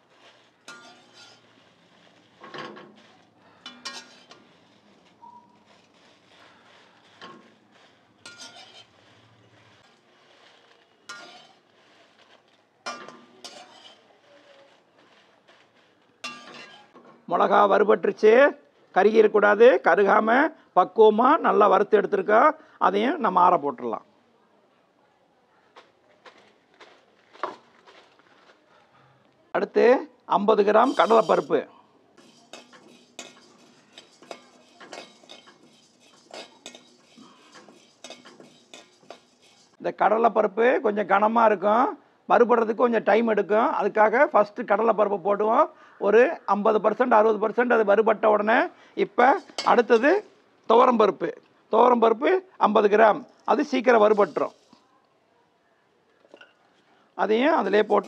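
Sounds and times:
dry lentils rattling: 0.0s - 17.0s, 30.7s - 31.6s, 32.2s - 39.8s, 49.2s - 50.3s, 53.3s - 54.8s, 57.3s - 58.0s
spatula scraping steel pan: 0.0s - 17.0s, 30.7s - 31.6s, 32.2s - 39.8s, 49.2s - 50.3s, 53.8s - 54.8s, 57.5s - 58.0s.

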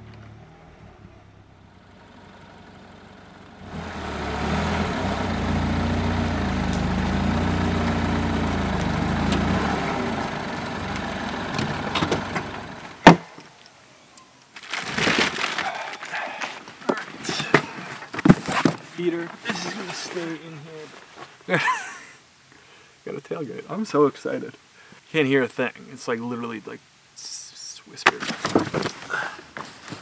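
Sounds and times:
car engine running: 0.1s - 13.0s.

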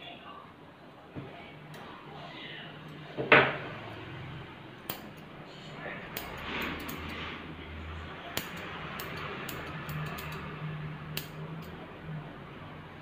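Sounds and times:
steady low hum: 0.5s - 13.0s
scissors snipping hair: 4.9s - 5.3s, 6.0s - 7.2s, 8.3s - 11.8s.

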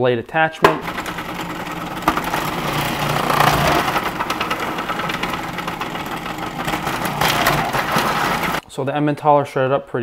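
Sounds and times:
food processor motor hum: 0.6s - 8.6s
cheese being shredded: 0.8s - 8.6s.

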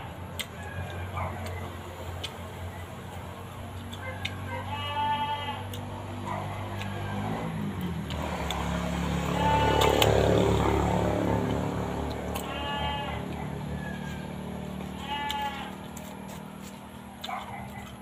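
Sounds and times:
farm animal bleating: 4.4s - 5.8s, 9.2s - 10.6s, 12.1s - 13.4s, 14.7s - 16.2s.

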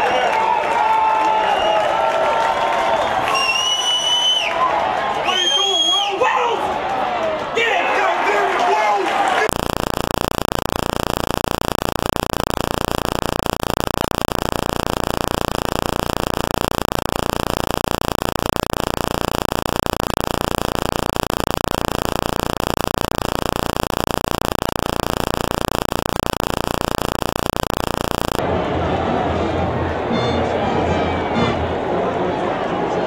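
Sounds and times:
electronic static hiss: 9.4s - 28.4s.

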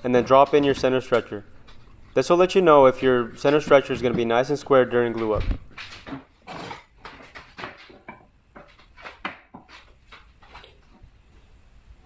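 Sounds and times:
wooden knocks and clicks: 5.1s - 11.1s.

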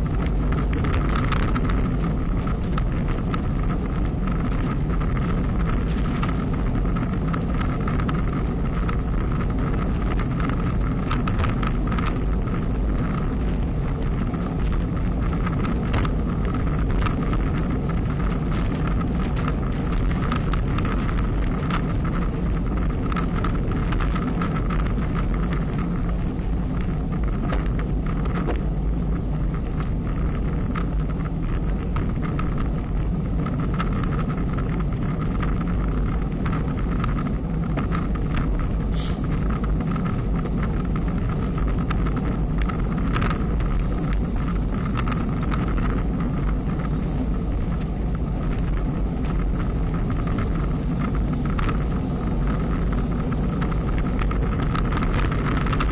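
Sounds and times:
small ticks: 0.0s - 55.9s
tyre and road noise: 0.0s - 55.9s
wind buffeting microphone: 0.0s - 55.9s.

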